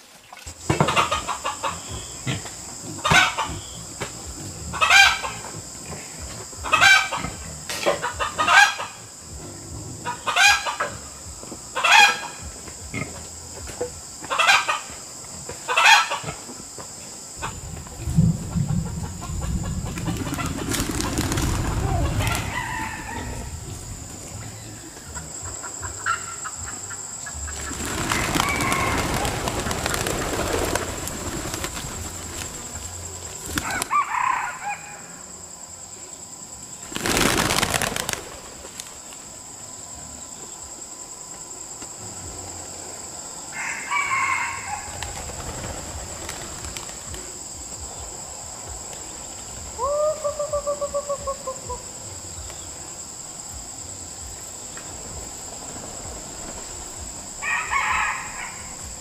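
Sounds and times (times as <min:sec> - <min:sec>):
rooster crowing: 0:11.8 - 0:12.5, 0:21.6 - 0:24.7, 0:25.6 - 0:30.1, 0:33.6 - 0:35.4, 0:43.4 - 0:45.2, 0:57.4 - 0:59.0
wing flapping: 0:17.4 - 0:25.1, 0:27.3 - 0:34.1, 0:36.8 - 0:39.4, 0:44.6 - 0:47.4, 0:54.9 - 0:59.0.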